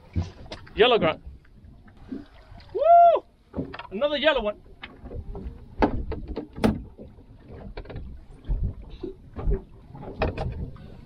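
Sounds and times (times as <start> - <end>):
low rumble of wind and water: 0.0 - 11.0.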